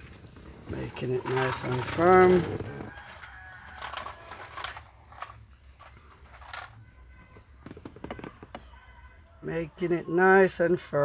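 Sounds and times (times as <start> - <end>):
handling clicks and scrapes: 0.0 - 8.6.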